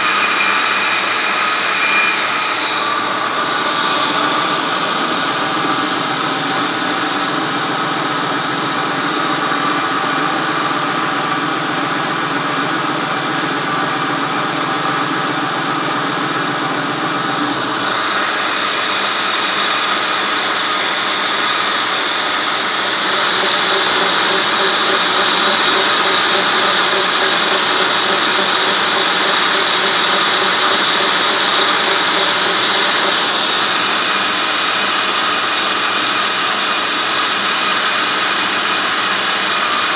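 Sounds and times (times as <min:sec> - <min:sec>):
high-pitched drive belt tones: 0:00.0 - 0:39.9
car engine running: 0:22.6 - 0:34.7.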